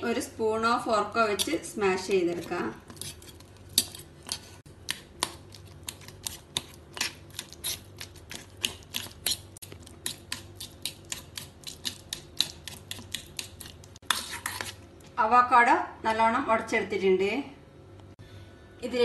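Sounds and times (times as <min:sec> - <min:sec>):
fork mashing in metal bowl: 0:01.2 - 0:14.9.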